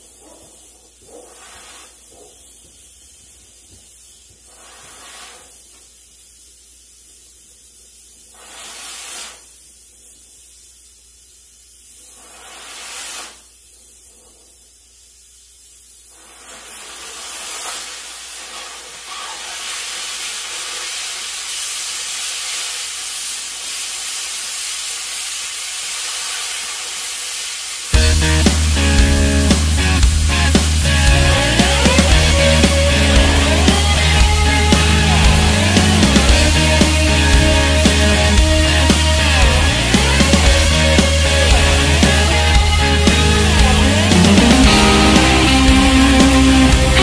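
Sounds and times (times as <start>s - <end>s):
cutting torch hissing: 0.0s - 47.0s.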